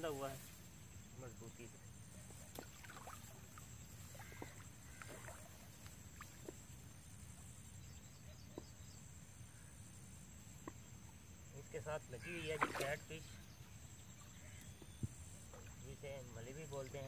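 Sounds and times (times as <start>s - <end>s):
water sloshing around wader: 1.7s - 7.6s, 12.2s - 17.0s.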